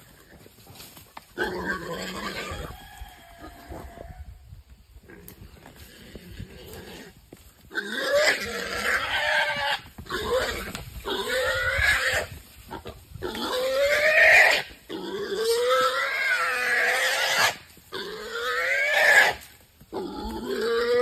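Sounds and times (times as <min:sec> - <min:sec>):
wild boar squealing: 0:01.4 - 0:04.3, 0:07.7 - 0:21.0.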